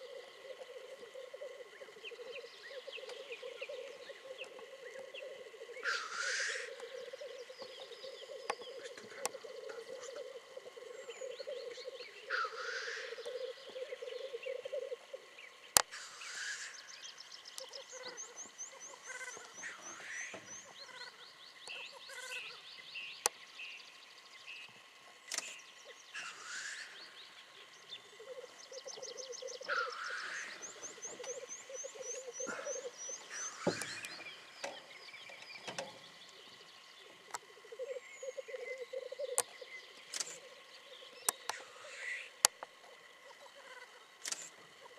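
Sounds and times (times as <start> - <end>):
grouse bubbling coo: 0.0 - 15.4, 27.6 - 34.7, 36.3 - 44.9
harsh rising hissing calls: 0.0 - 44.9
sharp clicks: 25.2 - 25.6, 40.1 - 40.4, 44.2 - 44.6.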